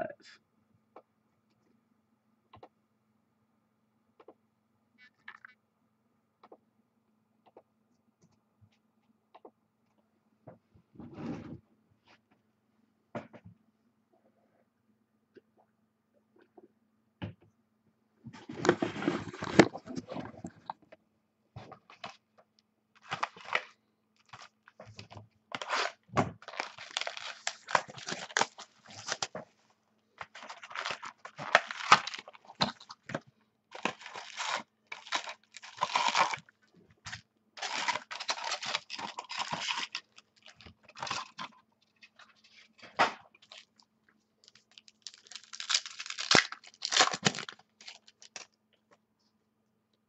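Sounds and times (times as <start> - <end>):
plastic wrapping torn and crinkled: 23.0 - 29.3, 30.2 - 33.1, 33.7 - 36.5, 37.1 - 41.5, 44.4 - 48.5.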